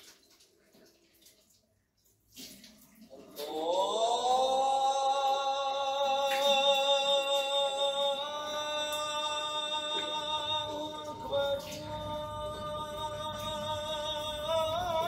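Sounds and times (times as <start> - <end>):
man singing a long note: 3.4 - 15.0.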